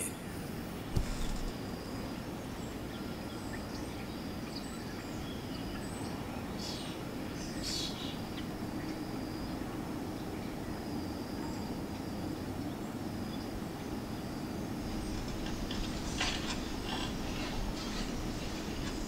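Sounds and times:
faint high steady tone: 0.0 - 0.8
low room rumble: 0.5 - 19.0.

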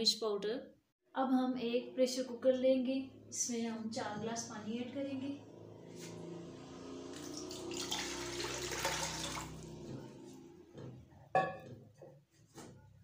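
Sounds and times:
water splashing into pot: 7.1 - 10.0.

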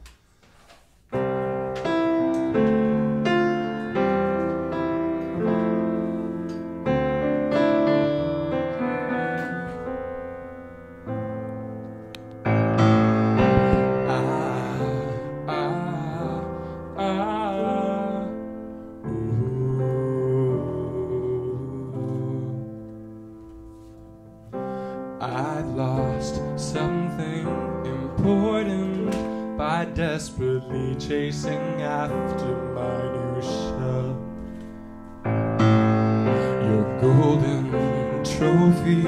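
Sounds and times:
grand piano chords: 1.1 - 39.0.

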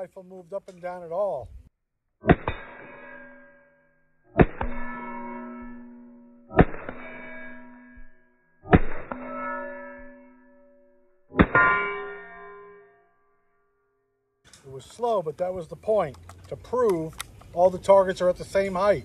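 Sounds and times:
steel plate ringing: 2.2 - 13.4.

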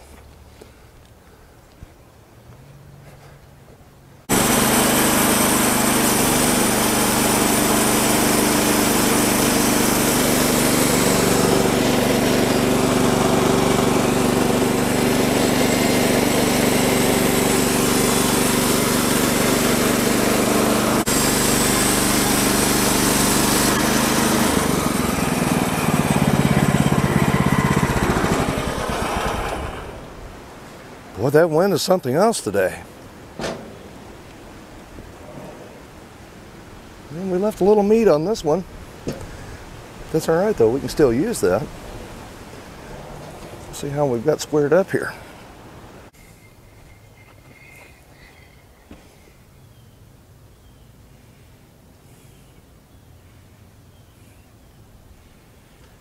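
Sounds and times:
bandsaw mill engine drone: 4.3 - 30.6, 36.9 - 49.0.

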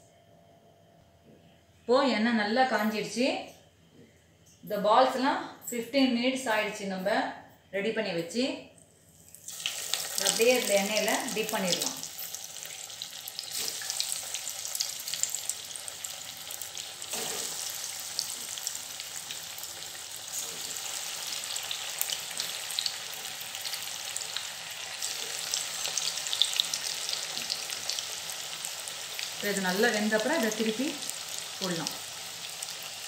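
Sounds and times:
deep-frying sizzle with crackles: 9.2 - 33.0.

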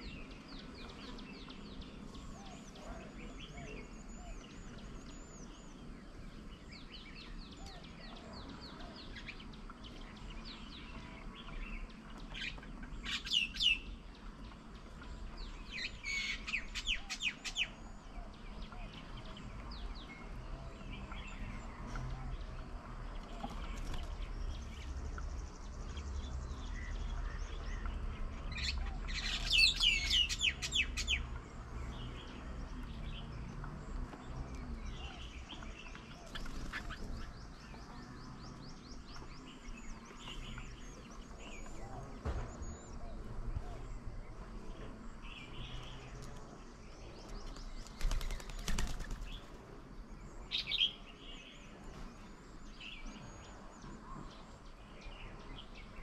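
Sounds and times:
birds chattering: 0.0 - 56.0.

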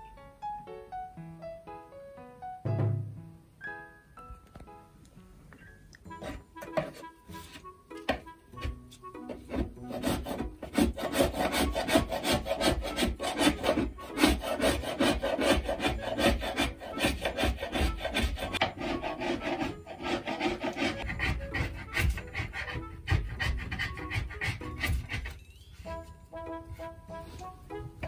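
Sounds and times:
metal scraper scraping wallpaper: 6.1 - 25.4.

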